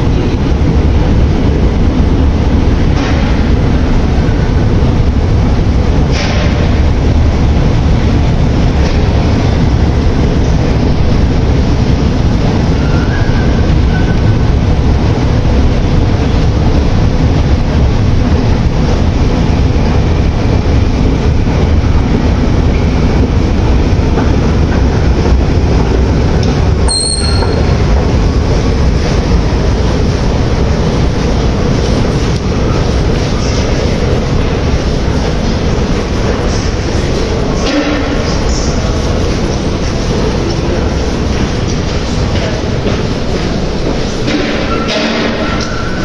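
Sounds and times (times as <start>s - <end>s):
metro train rumbling on rails: 0.0s - 46.0s
brief high-pitched tone: 26.9s - 27.7s
faint short squeal: 26.9s - 27.7s.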